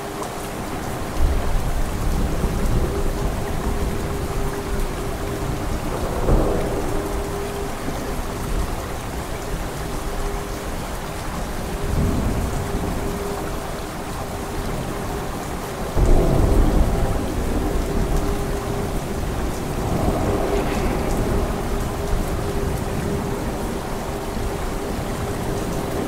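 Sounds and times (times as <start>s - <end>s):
steady rain: 0.0s - 26.0s
thunder rumbling: 0.7s - 26.0s
thunderclap: 1.2s - 9.2s, 16.0s - 25.0s.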